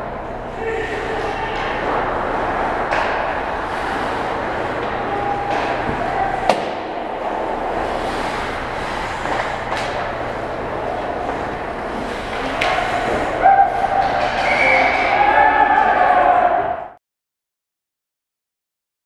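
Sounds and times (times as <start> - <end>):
players shouting: 0.4 - 17.0
hockey sticks and puck cracking: 0.5 - 16.3
skates scraping ice: 0.5 - 16.6.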